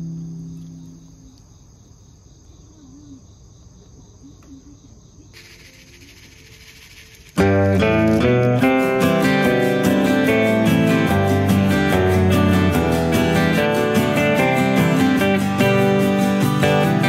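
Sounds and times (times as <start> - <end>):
guitar note: 0.0 - 1.3, 7.4 - 17.0
insects chirping: 0.0 - 17.0.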